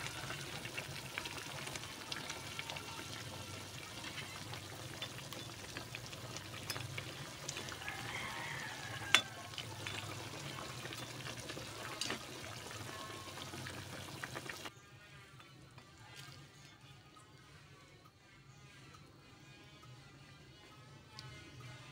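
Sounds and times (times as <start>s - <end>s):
soup bubbling in a pot: 0.0s - 14.7s
faint music: 0.0s - 21.9s.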